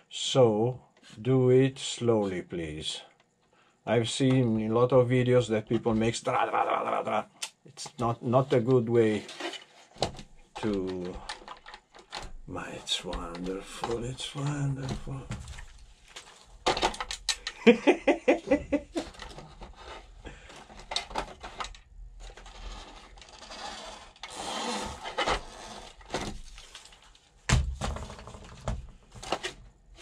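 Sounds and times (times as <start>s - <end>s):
plastic parts clattering: 8.5s - 17.7s, 18.9s - 30.0s.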